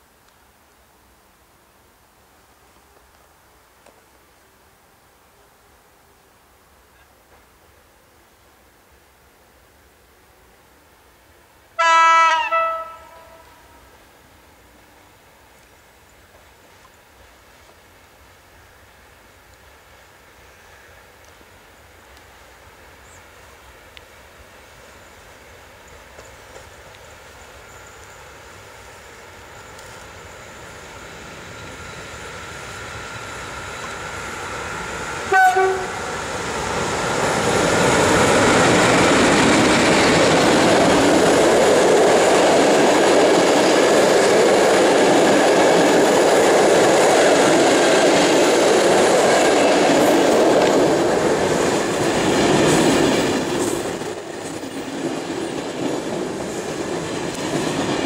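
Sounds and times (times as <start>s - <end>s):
locomotive horn blast: 11.8s - 13.9s, 35.3s - 36.1s
train wheels rushing on rails: 15.2s - 58.0s.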